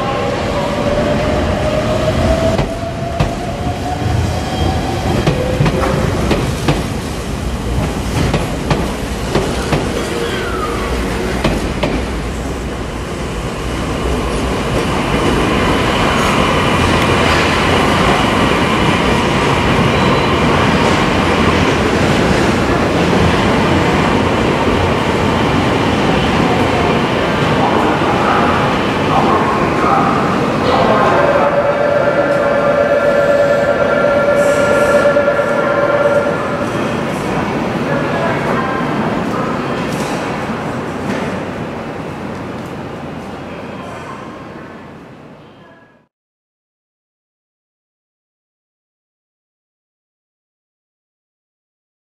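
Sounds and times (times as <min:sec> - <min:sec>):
electric train rumbling on rails: 0:00.0 - 0:45.8
train high whine: 0:12.3 - 0:38.4.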